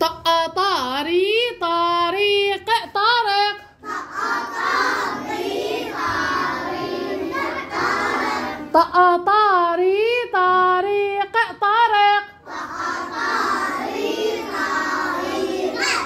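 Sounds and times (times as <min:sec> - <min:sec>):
children chanting together: 0:03.8 - 0:08.8, 0:12.4 - 0:16.0
child chanting alone: 0:03.8 - 0:09.3, 0:12.3 - 0:16.0.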